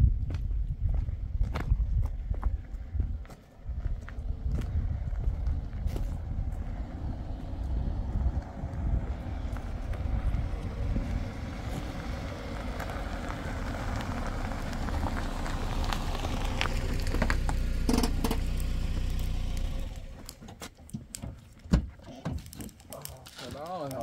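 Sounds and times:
car tyres on gravel: 0.1s - 24.0s
car engine running: 3.1s - 20.3s
sharp clicks and knocks: 17.1s - 18.6s.

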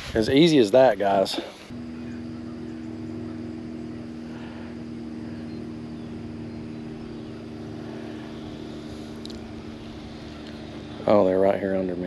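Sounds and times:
electric boat motor humming: 0.8s - 12.0s.

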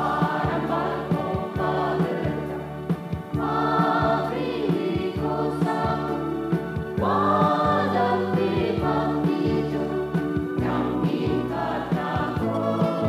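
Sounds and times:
band accompaniment: 0.0s - 13.0s
choir singing gospel song: 0.0s - 13.0s
steady drum beat: 0.0s - 13.0s.

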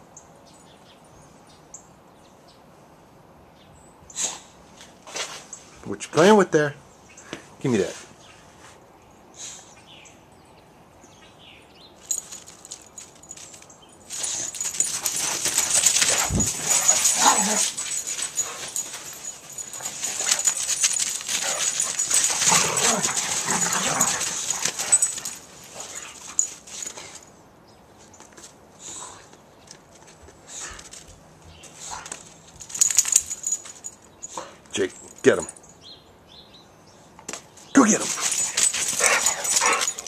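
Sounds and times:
loud rustling and crackling: 12.1s - 26.9s
dog whining and growling: 21.9s - 25.0s.

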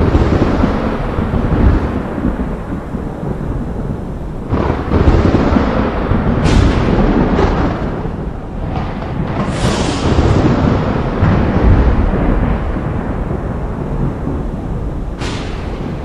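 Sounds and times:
thunder clap: 0.0s - 16.0s
thunder rumbling: 0.0s - 16.0s.

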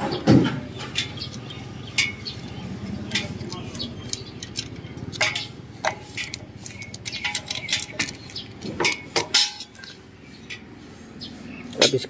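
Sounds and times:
clicks of plastic connectors: 3.1s - 9.9s.

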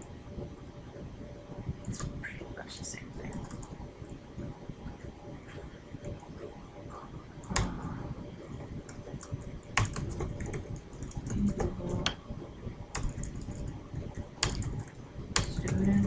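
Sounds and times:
computer keyboard typing: 3.2s - 3.8s, 7.4s - 7.8s, 8.4s - 12.2s, 12.9s - 16.0s.

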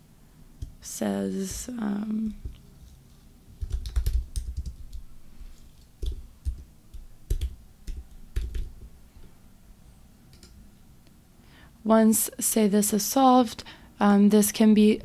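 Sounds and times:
typing on computer keyboard: 3.6s - 8.9s.

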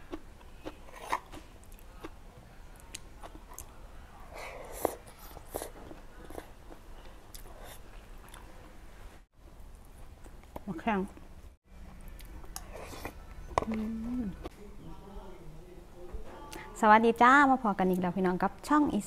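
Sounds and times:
person chewing food: 0.0s - 2.2s, 2.8s - 8.6s, 11.8s - 14.5s.

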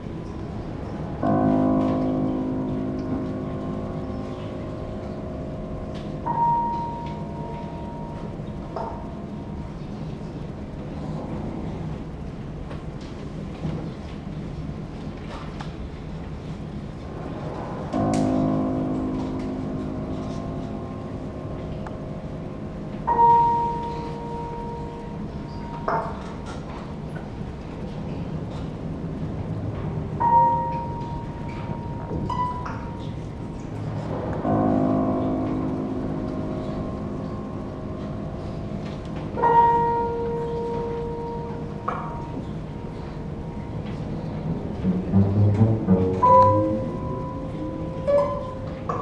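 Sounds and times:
low piano chord ringing: 0.0s - 12.6s, 16.3s - 49.0s
chamber quartet playing chords: 30.2s - 49.0s.

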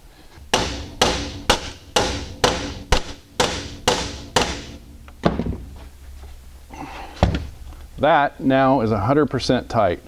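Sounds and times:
hammer striking metal: 0.5s - 4.9s.

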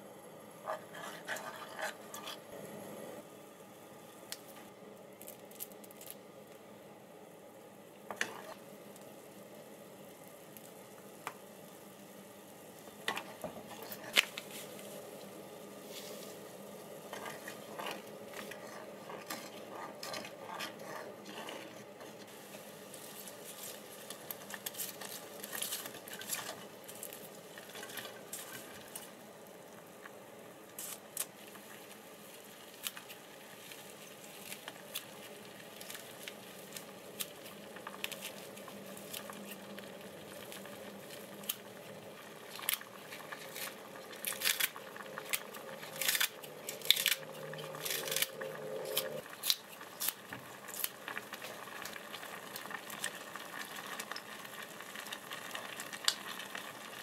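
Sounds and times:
wooden spoon stirring thick sauce: 17.1s - 22.4s.

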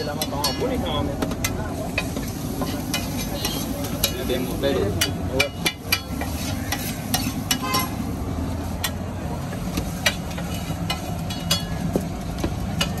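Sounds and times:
metal spatula scraping griddle: 1.9s - 8.2s, 9.9s - 11.8s.

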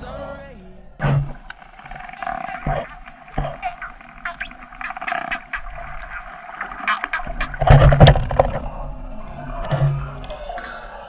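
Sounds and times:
steady underwater tone: 0.0s - 11.0s
water rushing: 1.0s - 11.0s
dolphin clicks: 1.4s - 8.5s
dolphin whistles: 1.8s - 7.5s.

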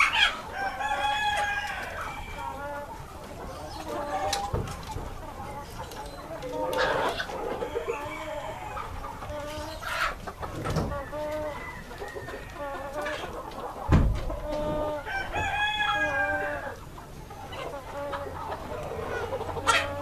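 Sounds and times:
chickens clucking: 0.0s - 20.0s
roosters crowing: 0.0s - 20.0s
dull thump: 13.9s - 14.3s.

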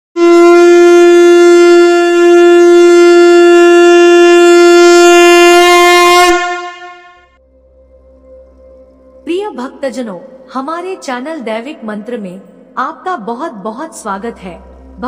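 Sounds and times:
conch shell blown: 0.2s - 9.0s.

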